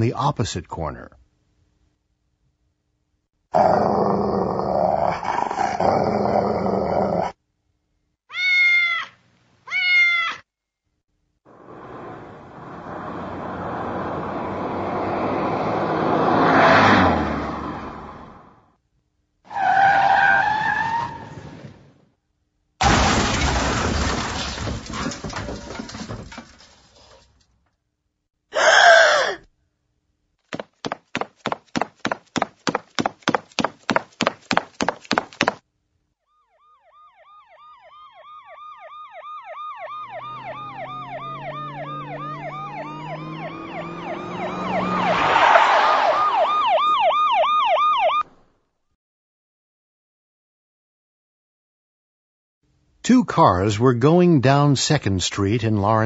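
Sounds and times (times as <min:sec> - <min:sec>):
car passing: 0:11.5 - 0:18.7, 0:40.0 - 0:46.7
car crash: 0:22.8 - 0:27.4.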